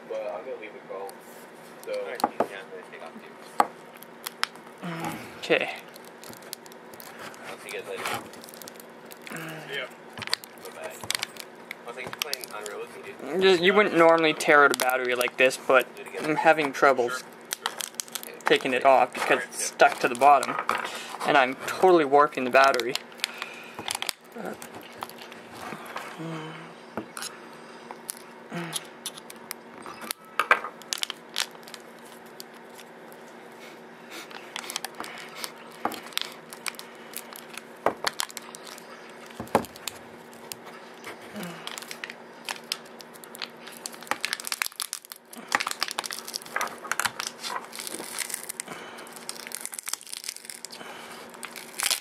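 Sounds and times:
faint steady hum: 0:00.0 - 0:52.0
battery foil crinkling and crackling: 0:03.0 - 0:26.1, 0:27.9 - 0:28.3, 0:28.9 - 0:33.6, 0:34.2 - 0:52.0.

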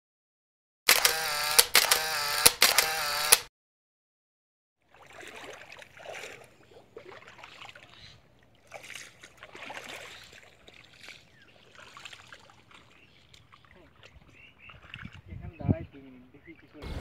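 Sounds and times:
bare feet wading through water: 0:04.8 - 0:15.4.

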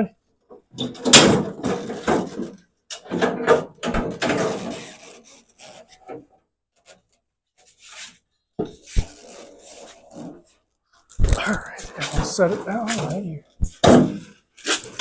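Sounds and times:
sheet-metal hood scraping: 0:03.1 - 0:06.3, 0:08.8 - 0:10.4.

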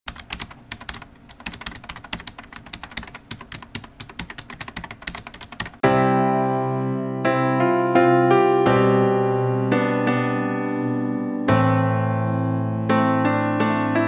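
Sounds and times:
keyboard typing clicks: 0:00.1 - 0:05.8
piano music with held notes: 0:05.6 - 0:14.0.

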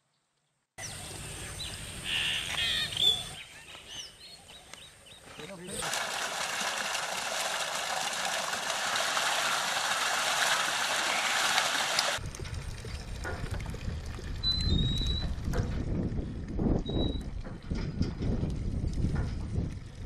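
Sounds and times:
water pouring with rushing splash: 0:05.8 - 0:15.5.

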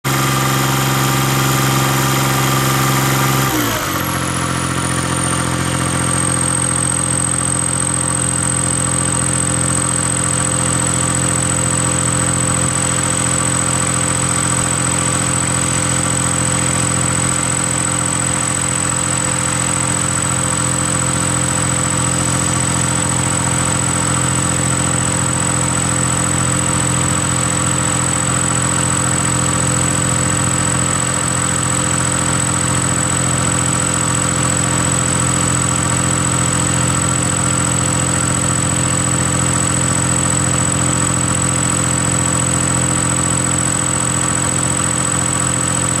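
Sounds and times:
small tractor engines droning: 0:00.0 - 0:46.0.

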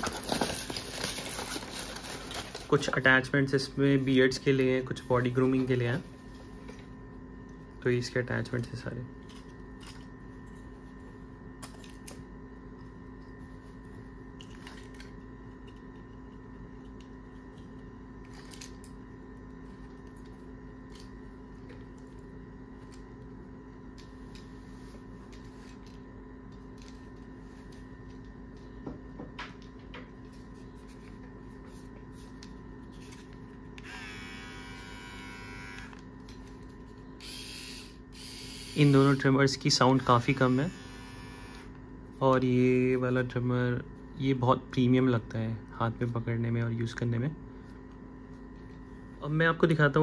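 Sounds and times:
electrical hum: 0:00.0 - 0:50.0
electric trimmer buzzing: 0:33.8 - 0:36.1, 0:37.2 - 0:39.4, 0:40.3 - 0:41.8.

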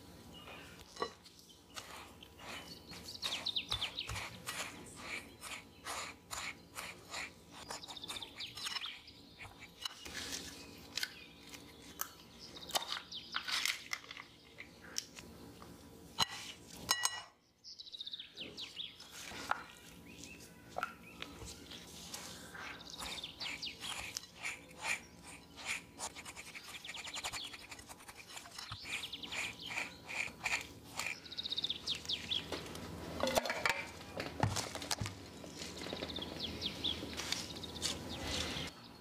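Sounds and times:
spatula scraping crumbs in a bowl: 0:01.7 - 0:10.4, 0:21.8 - 0:31.2.

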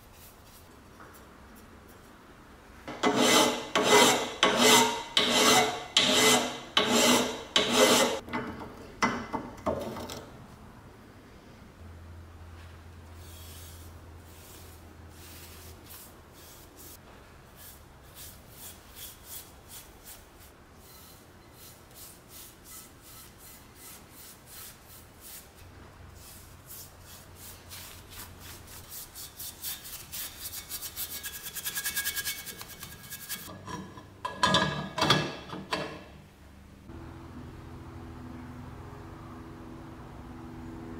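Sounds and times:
brush stroking on metal: 0:13.2 - 0:33.5.

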